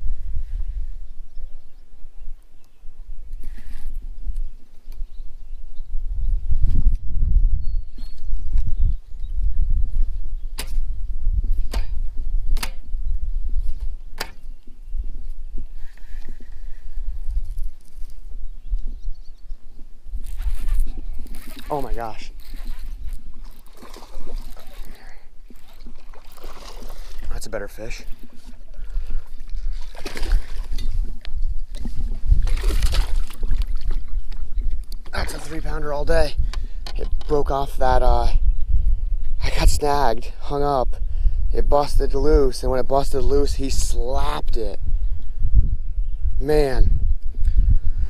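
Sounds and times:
fish thrashing and splashing: 0:20.4 - 0:27.3, 0:28.2 - 0:30.9, 0:32.3 - 0:34.6.

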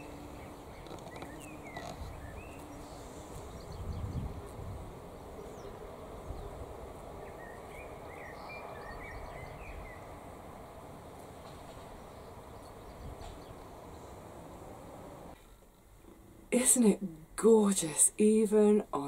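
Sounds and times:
bees buzzing: 0:00.0 - 0:07.9
wind rumbling on microphone: 0:00.0 - 0:15.4.

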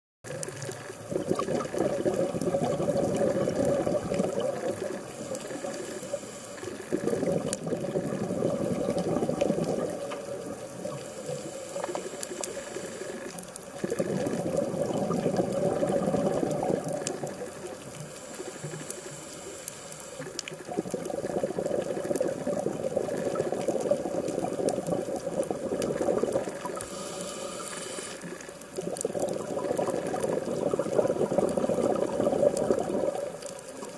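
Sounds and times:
exhaled bubbles gurgling underwater: 0:00.3 - 0:33.9
regulator in-breath hiss: 0:05.0 - 0:07.0, 0:10.8 - 0:13.4, 0:18.0 - 0:20.3, 0:26.6 - 0:28.5.

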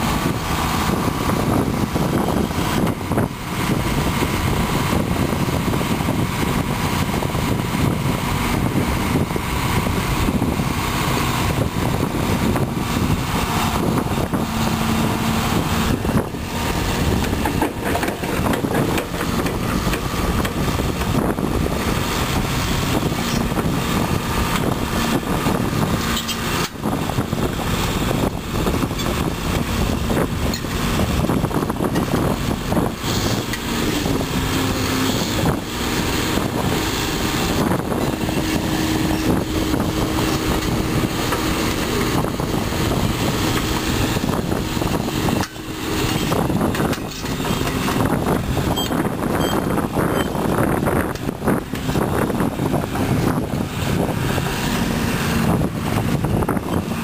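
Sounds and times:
excavator diesel engine running: 0:00.0 - 0:57.0
hydraulics whining: 0:00.0 - 0:57.0.

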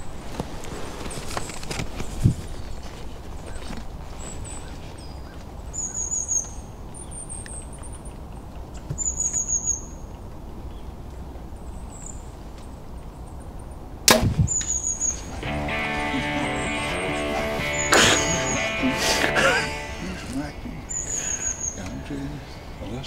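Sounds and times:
small birds chirping: 0:00.0 - 0:23.0
bow firing crack: 0:14.1 - 0:15.0
music: 0:15.4 - 0:23.0.

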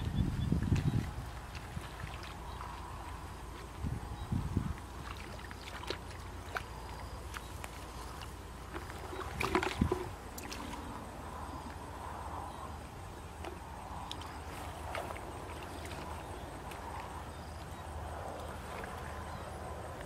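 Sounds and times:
hands splashing in muddy water: 0:04.8 - 0:10.9.

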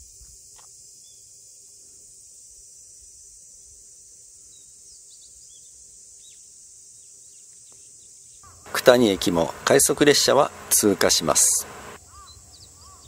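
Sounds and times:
high-pitched insect chorus: 0:00.0 - 0:13.0
bird chirps: 0:11.6 - 0:13.0.

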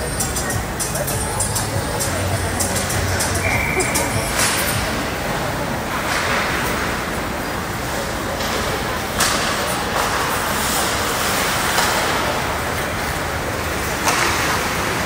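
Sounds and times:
skates on ice: 0:07.9 - 0:15.0.

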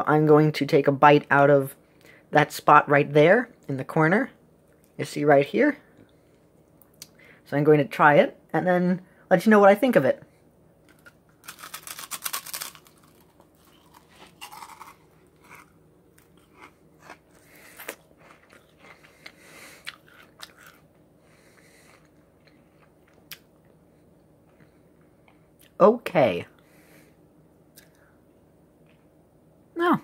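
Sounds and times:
popcorn crunching: 0:10.8 - 0:23.8
chewing crunches: 0:11.4 - 0:23.8.

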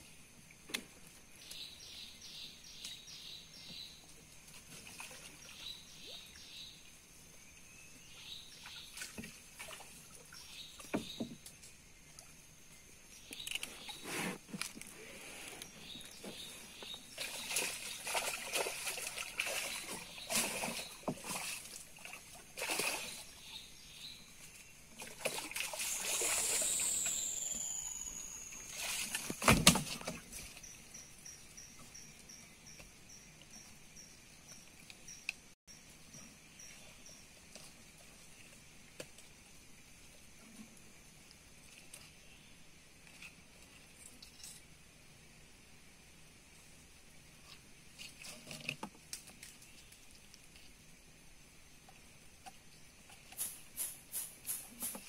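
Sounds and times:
water splashing against wooden boat: 0:15.9 - 0:23.5, 0:24.9 - 0:27.4, 0:28.6 - 0:30.7
high falling whine: 0:25.8 - 0:29.2.

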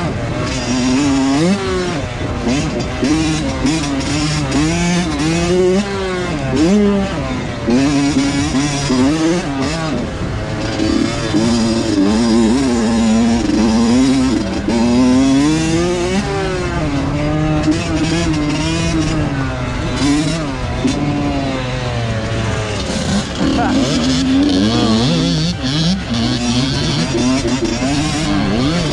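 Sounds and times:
dirt bike engine revving: 0:00.0 - 0:28.9.

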